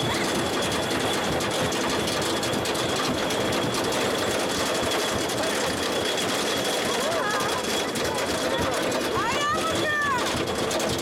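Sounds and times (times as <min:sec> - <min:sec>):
ride car rattling on track: 0:00.0 - 0:11.0.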